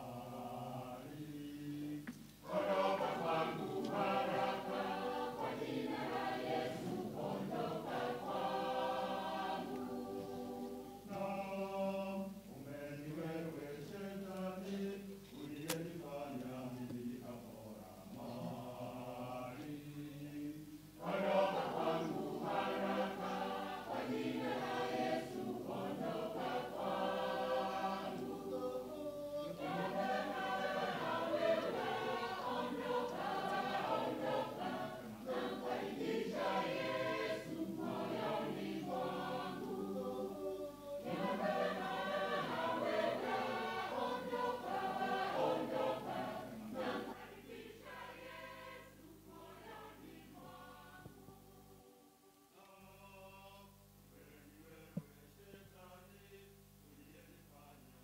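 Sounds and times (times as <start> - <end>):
mixed choir singing: 0.0 - 56.2.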